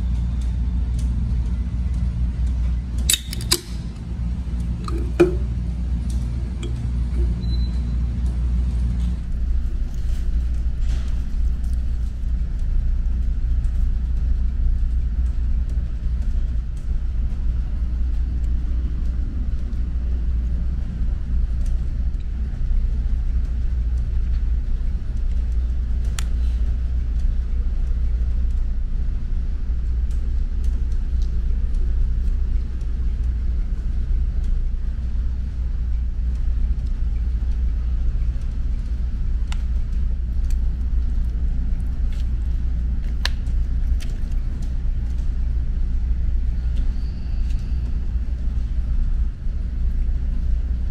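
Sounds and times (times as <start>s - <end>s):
ship engines rumbling: 0.0s - 50.9s
sharp clicks: 1.9s - 4.0s.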